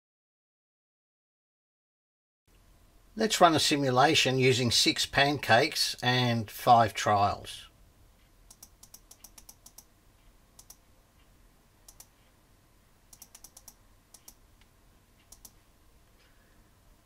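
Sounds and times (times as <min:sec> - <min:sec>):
mouse and keyboard clicks: 0:08.5 - 0:09.9, 0:10.6 - 0:10.8, 0:11.9 - 0:12.3, 0:13.1 - 0:14.4, 0:15.2 - 0:15.6.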